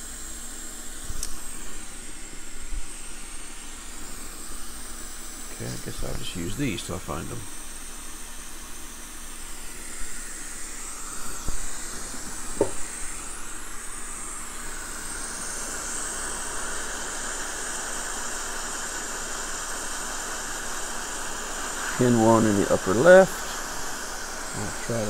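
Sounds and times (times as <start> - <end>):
hot air blower hissing: 0.0 - 25.0
light knocks: 12.1 - 12.8.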